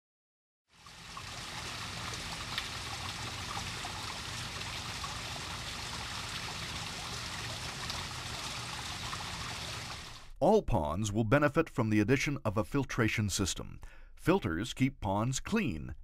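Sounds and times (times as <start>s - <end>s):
water running and trickling: 0.7s - 10.3s.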